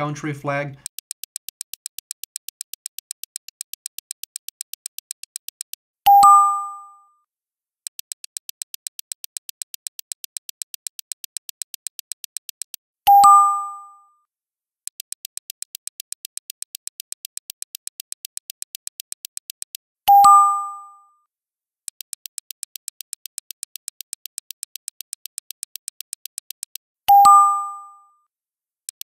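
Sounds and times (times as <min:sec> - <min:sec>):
countdown timer ticking fast: 0:00.0 - 0:05.8, 0:07.9 - 0:12.8, 0:14.9 - 0:19.8, 0:21.9 - 0:26.8.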